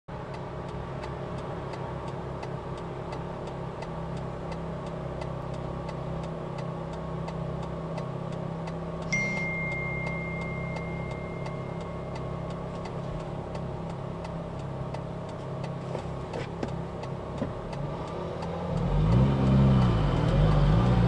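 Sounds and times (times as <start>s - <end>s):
car engine idling: 0.1s - 21.0s
steady ticking: 0.1s - 21.0s
steady high beep: 9.0s - 13.8s.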